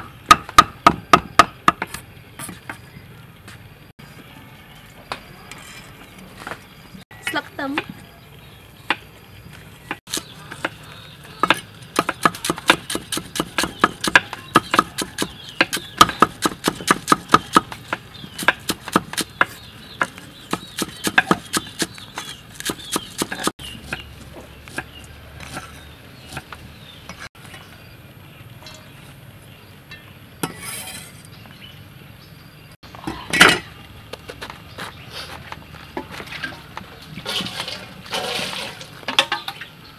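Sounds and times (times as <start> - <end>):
knives chopping on wood: 11.4 - 27.3.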